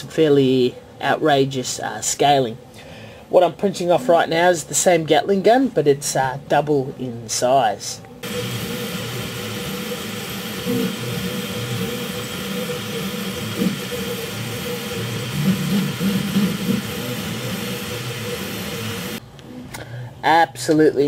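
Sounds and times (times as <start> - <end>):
steady hum: 0.0 - 20.3
stepper motors whirring: 8.2 - 19.2.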